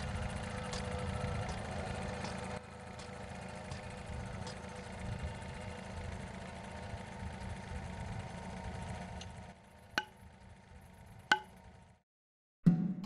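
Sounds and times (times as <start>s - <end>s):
hammer striking wooden stake: 10.0s - 10.3s, 11.3s - 11.7s.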